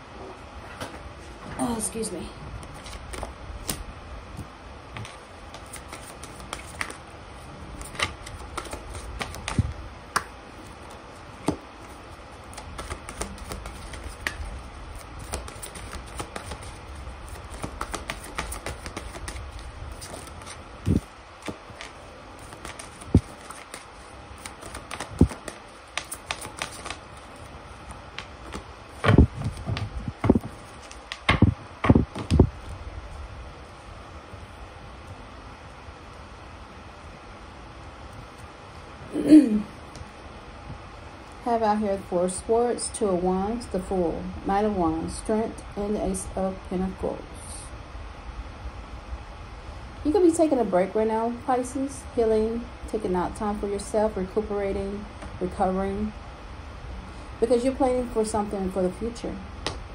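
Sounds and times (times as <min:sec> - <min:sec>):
cards being shuffled: 0:02.6 - 0:03.8, 0:04.9 - 0:32.8.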